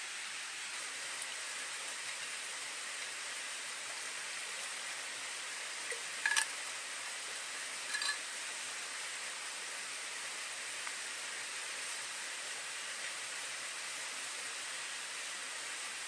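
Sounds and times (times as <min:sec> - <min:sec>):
river water flowing: 0:00.0 - 0:16.0
metal bottle clinks: 0:07.9 - 0:08.2.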